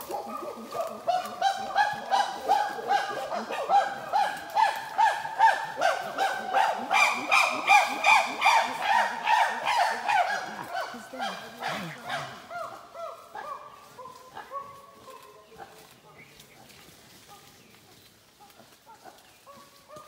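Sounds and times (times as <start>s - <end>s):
chimpanzee pant-hoot chorus: 0.0s - 20.0s
chimpanzee screaming calls: 0.1s - 14.1s.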